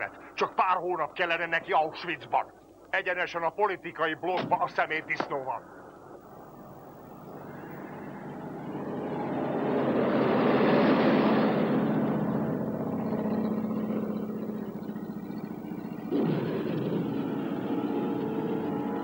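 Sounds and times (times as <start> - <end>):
car driving past: 7.1 - 19.0.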